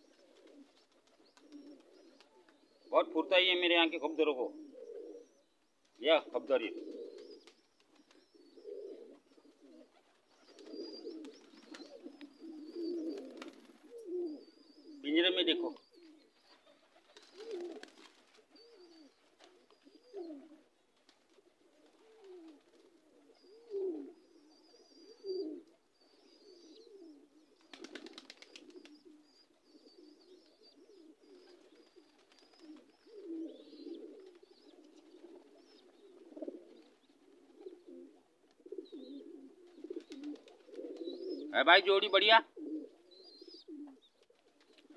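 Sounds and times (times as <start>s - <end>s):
pigeons cooing: 0.0s - 44.9s
faint high bird chirps: 7.1s - 17.6s, 18.5s - 20.4s, 23.3s - 27.8s, 28.4s - 36.2s, 43.1s - 44.2s.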